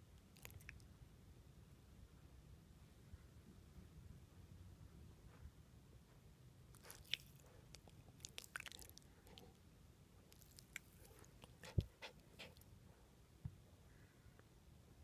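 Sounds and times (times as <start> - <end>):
puppy mouth clicks and smacks: 0.2 - 0.9.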